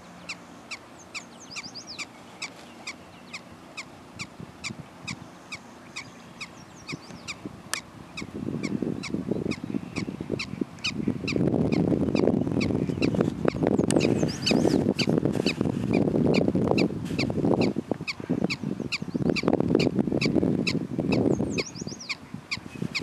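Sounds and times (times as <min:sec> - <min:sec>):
low rumbling on microphone: 0:06.1 - 0:23.0.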